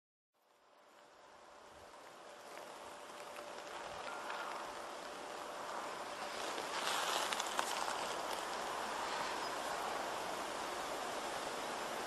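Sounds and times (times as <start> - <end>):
faint crackles: 1.8 - 10.0.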